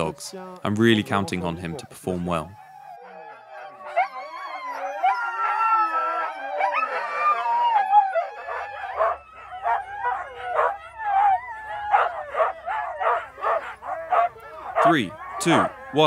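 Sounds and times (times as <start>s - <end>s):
sled dogs howling and yipping: 0.0s - 16.0s
dog barking: 8.5s - 11.3s, 11.9s - 15.8s.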